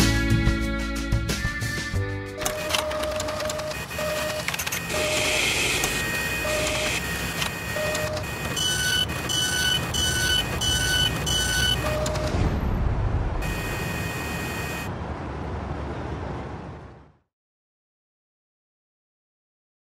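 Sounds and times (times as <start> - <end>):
high electronic beeps: 2.4 - 12.4
machine whirring: 2.4 - 12.4
mechanical clicks and clanks: 2.4 - 12.4
short low bleeps: 7.7 - 12.4.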